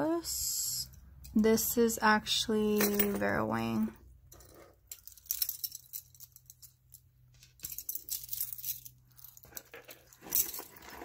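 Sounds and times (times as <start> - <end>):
metal jewelry jingling: 2.7 - 11.0.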